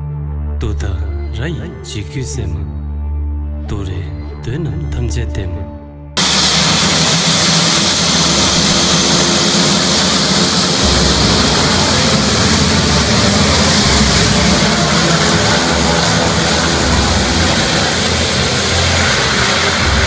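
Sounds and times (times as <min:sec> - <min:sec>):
turboprop engines running: 0:06.2 - 0:20.0.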